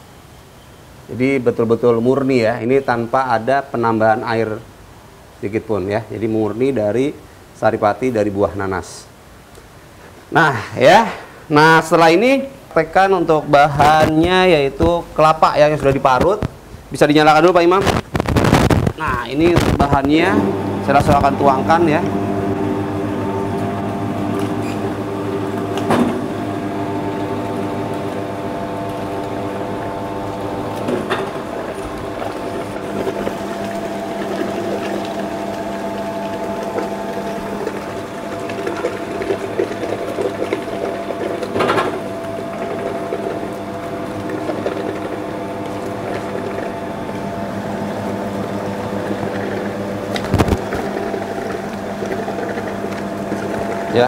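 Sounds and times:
press motor hum: 19.4s - 54.0s.

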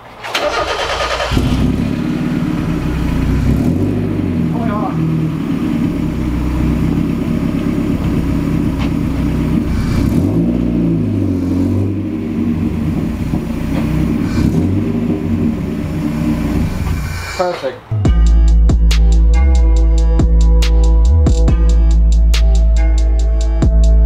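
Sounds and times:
car engine at low revs: 1.2s - 17.4s.

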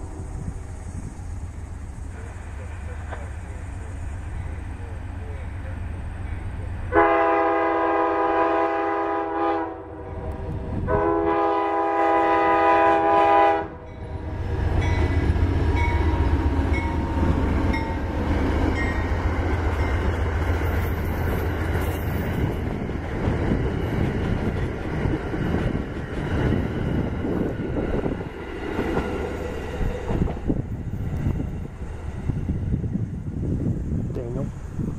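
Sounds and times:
train wheels clattering on rails: 0.0s - 6.9s, 14.2s - 32.6s
locomotive engine rumble: 0.0s - 9.1s, 9.8s - 34.9s
locomotive horn blasts: 6.9s - 14.0s.

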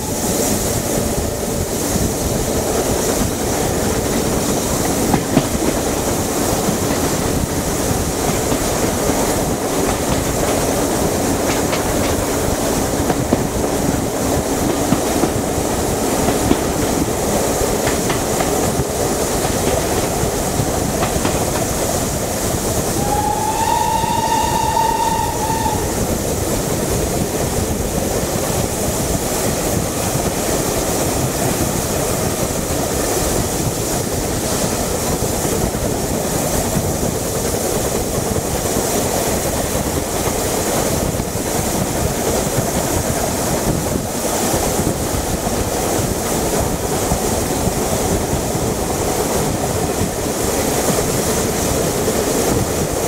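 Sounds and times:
train wheels clattering on rails: 0.0s - 53.0s
steam whistle blowing: 22.9s - 26.2s.

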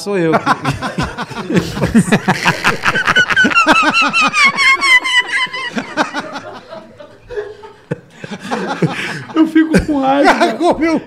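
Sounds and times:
men laughing together: 0.3s - 11.0s
high-pitched wavering laugh: 1.4s - 7.9s.

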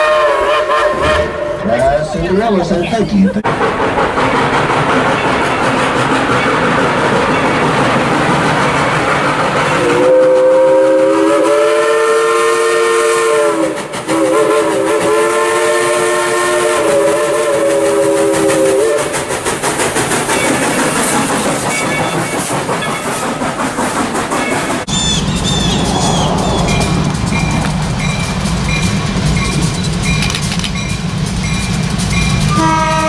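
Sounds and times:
steam locomotive chime whistle: 0.0s - 1.6s, 9.8s - 19.2s, 24.8s - 33.0s
steam locomotive running: 0.0s - 33.0s.

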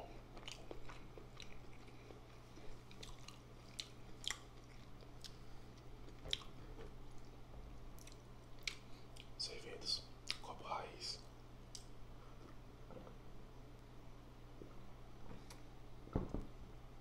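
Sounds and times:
faint low electrical hum: 0.0s - 17.0s
mouth chewing: 0.4s - 7.3s, 7.9s - 9.4s
wet mouth clicks: 8.0s - 9.3s, 10.2s - 10.4s.

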